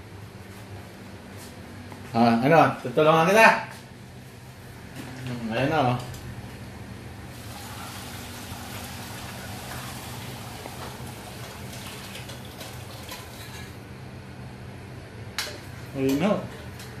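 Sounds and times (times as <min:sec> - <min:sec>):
steady low hum: 0:00.0 - 0:17.0
broth pouring into a pot: 0:07.3 - 0:13.8.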